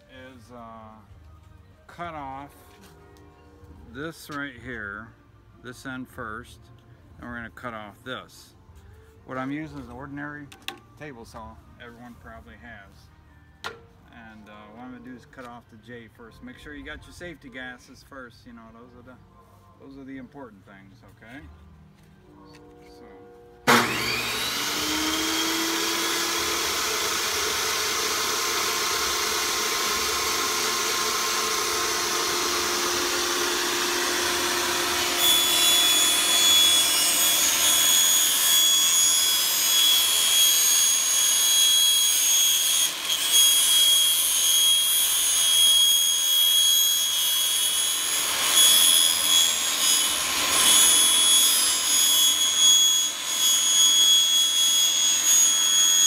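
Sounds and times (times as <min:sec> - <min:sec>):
table saw motor whining: 0:22.5 - 0:56.0
saw blade cutting vinyl strip: 0:23.7 - 0:56.0.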